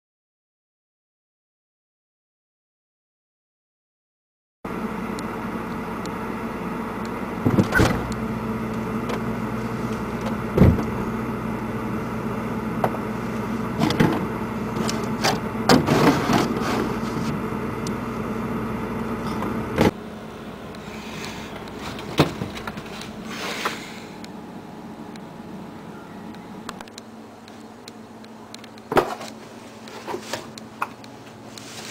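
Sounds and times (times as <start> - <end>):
refrigerator humming: 4.7 - 31.9
knocks and rattles of items: 21.7 - 23.1.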